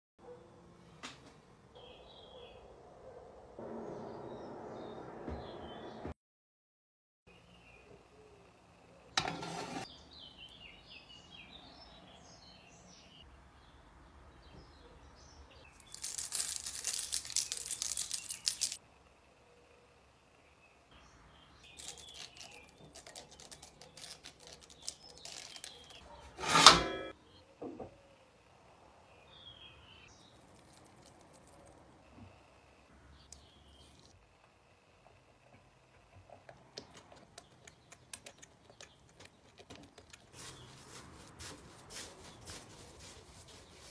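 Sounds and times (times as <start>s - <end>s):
small birds chirping: 9.8s - 26.4s, 29.0s - 43.9s
rustle: 40.1s - 43.9s.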